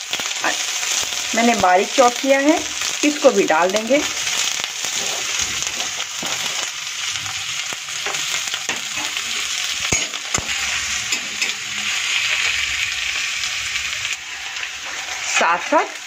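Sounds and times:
onions sizzling in hot oil: 0.0s - 16.0s
stirring in pan: 4.0s - 6.8s, 14.1s - 16.0s.

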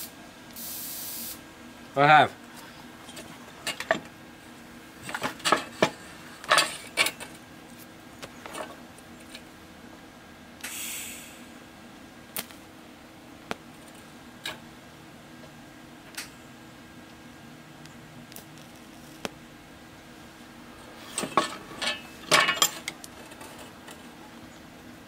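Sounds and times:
welding gas hiss: 0.0s - 1.5s, 10.6s - 11.7s
steel plates clanking: 21.0s - 23.7s.

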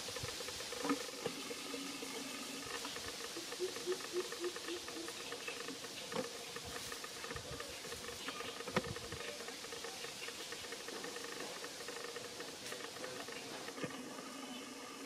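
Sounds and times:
steady high hiss: 0.0s - 15.0s
leaves rustling under footsteps: 5.8s - 13.8s.

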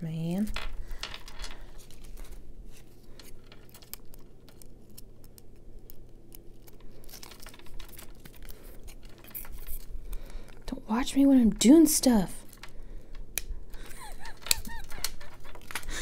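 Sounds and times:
paper rustling: 1.4s - 10.5s, 14.0s - 16.0s.

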